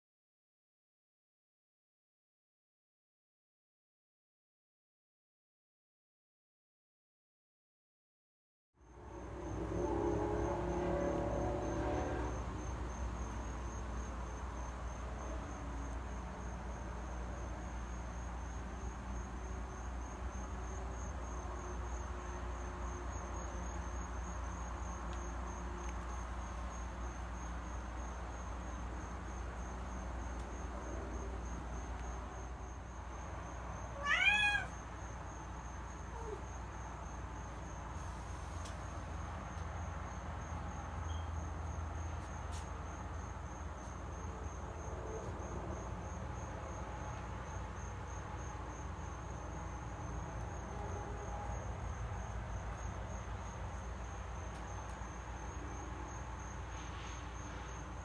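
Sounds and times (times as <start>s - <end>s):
cat meowing: 34.0s - 34.8s.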